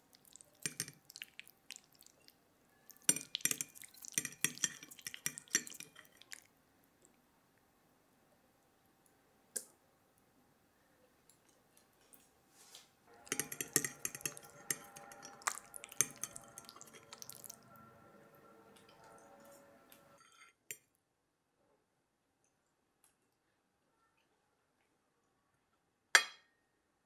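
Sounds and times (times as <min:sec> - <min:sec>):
fork clinking and scraping on plate: 0:00.3 - 0:01.0, 0:03.1 - 0:06.4, 0:13.1 - 0:20.5.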